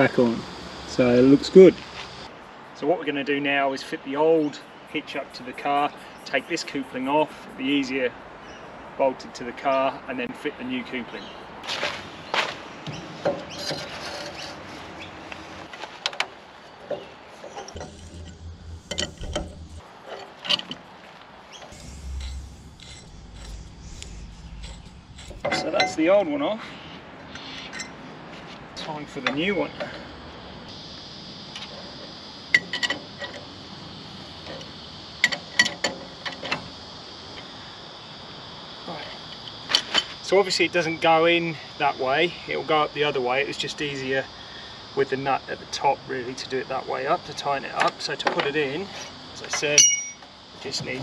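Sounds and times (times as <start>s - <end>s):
spanner clinking on metal: 17.7s - 19.8s, 49.8s - 50.3s
low rumble: 17.8s - 19.8s, 21.7s - 26.2s.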